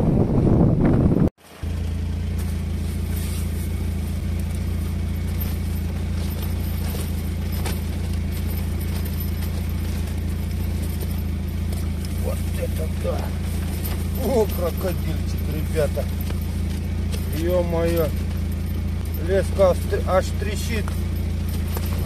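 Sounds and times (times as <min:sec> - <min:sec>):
wind blowing across microphone: 0:00.0 - 0:01.3
tent shaking in wind: 0:03.1 - 0:22.0.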